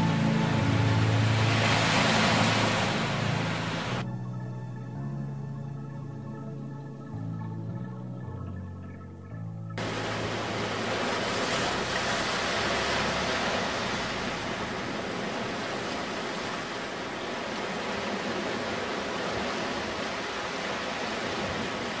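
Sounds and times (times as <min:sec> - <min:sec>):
waves washing on pebbly shore: 0:00.1 - 0:04.0, 0:09.8 - 0:22.0.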